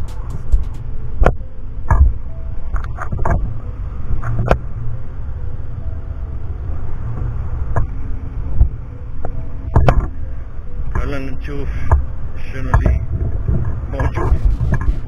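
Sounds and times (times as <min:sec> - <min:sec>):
wind on microphone: 0:11.8 - 0:15.0.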